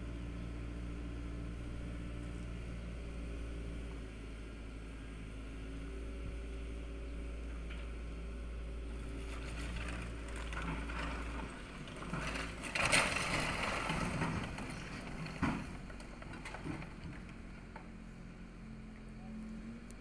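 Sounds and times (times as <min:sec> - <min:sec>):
excavator engine running: 0:00.0 - 0:20.0
roof tiles crashing: 0:12.0 - 0:15.6.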